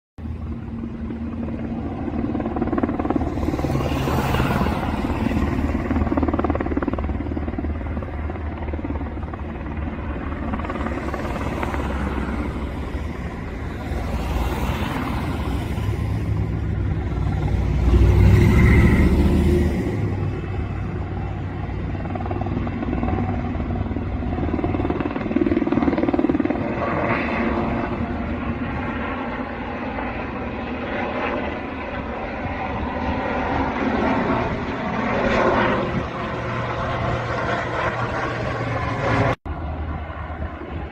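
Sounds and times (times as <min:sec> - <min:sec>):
helicopter rotor and engine: 0:00.2 - 0:40.9.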